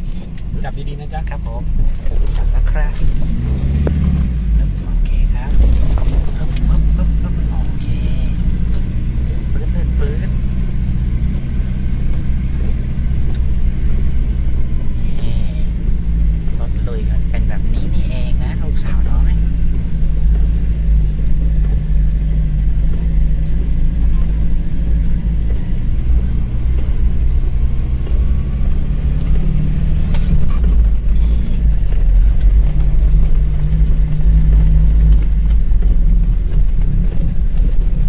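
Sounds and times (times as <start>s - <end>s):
vehicle engine rumbling: 0.0s - 38.0s.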